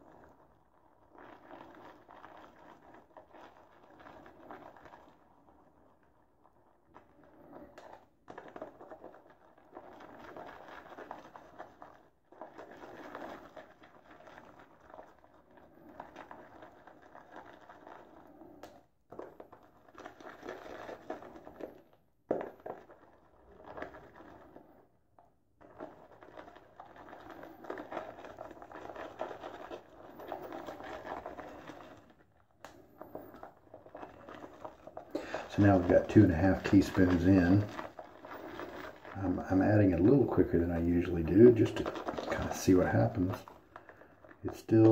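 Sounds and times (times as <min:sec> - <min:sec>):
shaving brush whisking lather: 0:33.3 - 0:44.9.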